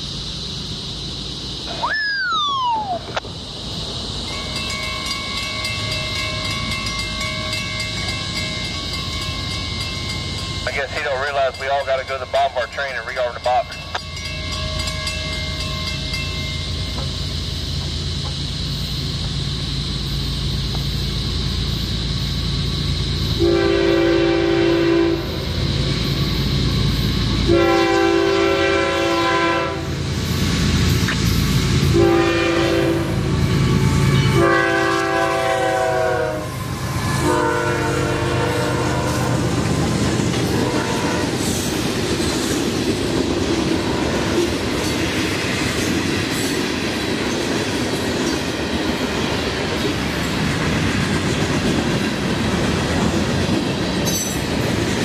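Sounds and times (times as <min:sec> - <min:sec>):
locomotive engine rumbling: 0:00.0 - 0:55.0
train wheels clacking on rails: 0:04.2 - 0:23.4, 0:33.1 - 0:55.0
train horn blasts: 0:23.4 - 0:25.4, 0:27.4 - 0:30.0, 0:31.9 - 0:39.5, 0:40.4 - 0:41.5.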